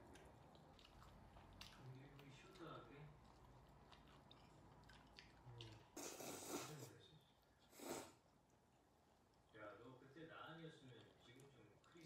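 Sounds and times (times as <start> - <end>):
person chewing food: 0.0 - 8.6.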